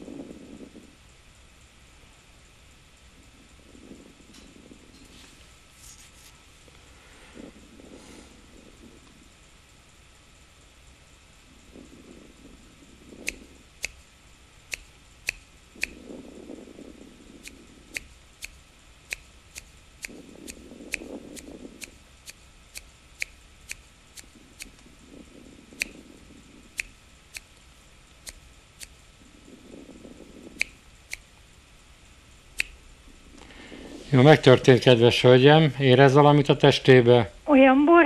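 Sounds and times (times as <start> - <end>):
soft low rush: 0.0 - 38.0
fingers snapping: 13.2 - 14.0, 14.7 - 16.2, 25.7 - 26.0, 30.1 - 31.3, 32.6 - 32.8.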